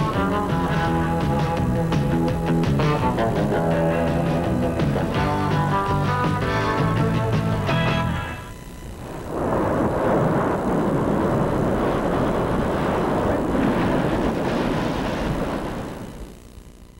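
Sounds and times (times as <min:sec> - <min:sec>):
ocean surf breaking: 0:09.0 - 0:16.1.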